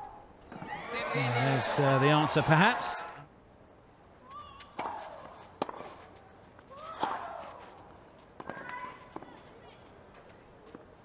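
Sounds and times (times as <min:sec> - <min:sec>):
racket striking tennis ball: 0:04.8 - 0:06.0, 0:06.9 - 0:07.6.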